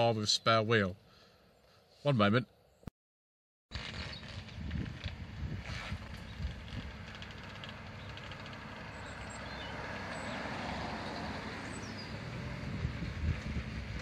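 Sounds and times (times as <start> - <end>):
car rumbling slowly: 3.8 - 14.0.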